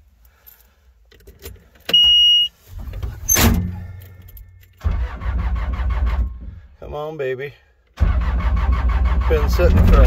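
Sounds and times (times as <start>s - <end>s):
high warning beep: 1.9s - 2.5s
diesel engine cranking: 2.8s - 6.8s, 7.9s - 10.0s.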